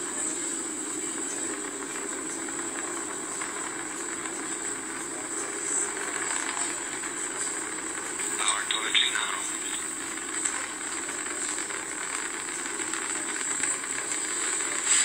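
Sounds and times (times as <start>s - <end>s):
rocket engine roar: 8.2s - 10.5s.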